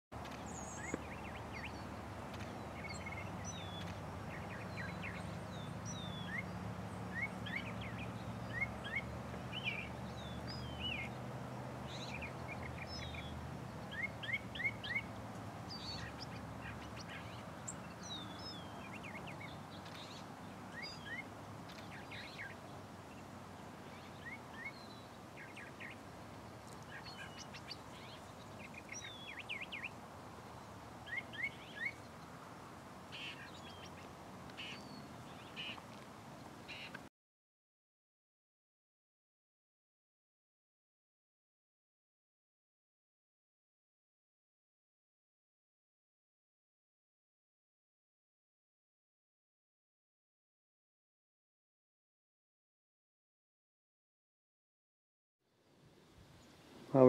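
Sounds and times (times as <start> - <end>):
songbirds chirping: 0.2 - 37.1, 55.5 - 57.0.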